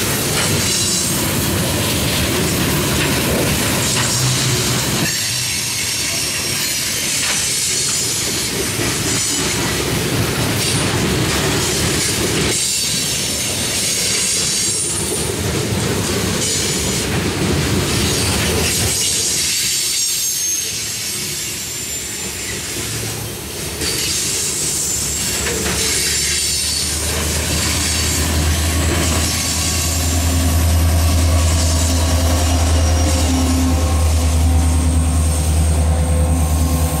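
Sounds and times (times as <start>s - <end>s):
clickety-clack over rail joints: 0.0s - 21.6s, 22.2s - 36.8s
diesel locomotive engine drone: 0.0s - 37.0s
wheel squeal: 18.1s - 35.6s
freight cars rolling past: 22.8s - 37.0s.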